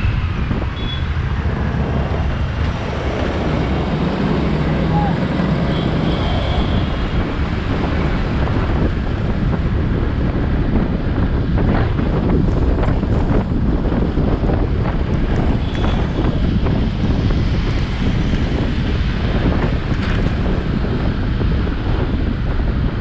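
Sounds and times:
road noise: 0:00.0 - 0:23.0
wind rumble on microphone: 0:00.0 - 0:23.0.

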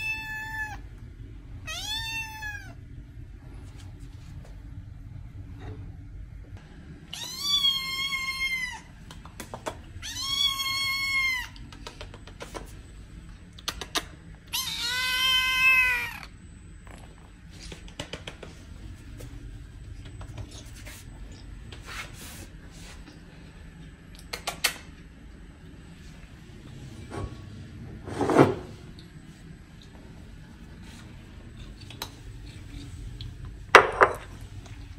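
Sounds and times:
cat meowing: 0:00.0 - 0:00.8, 0:01.7 - 0:02.8, 0:07.1 - 0:08.9, 0:10.0 - 0:11.6, 0:14.5 - 0:16.3.

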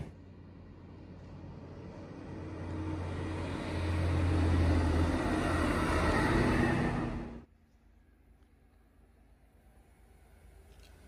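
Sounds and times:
diesel engine humming: 0:00.0 - 0:07.5
wheels rumbling on rails: 0:00.0 - 0:07.5.

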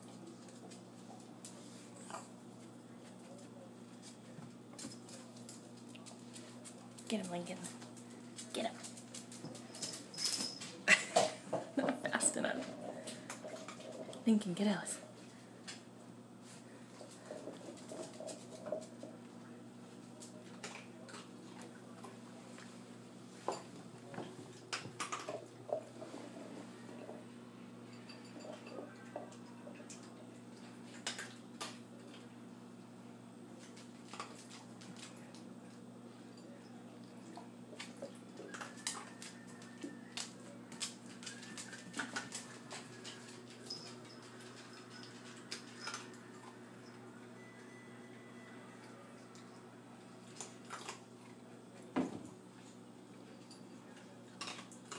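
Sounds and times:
pets clicking and scuffing on floor: 0:00.0 - 0:14.5, 0:33.6 - 0:36.4, 0:37.7 - 0:46.6
low steady hum: 0:00.0 - 0:54.9.

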